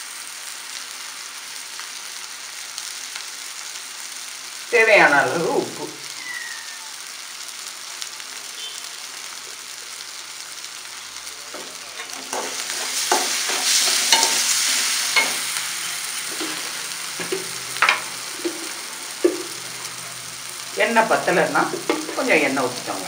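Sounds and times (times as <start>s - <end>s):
onions frying in oil: 0.0s - 23.0s
utensil scraping and knocking pan: 11.6s - 15.6s, 16.3s - 19.6s.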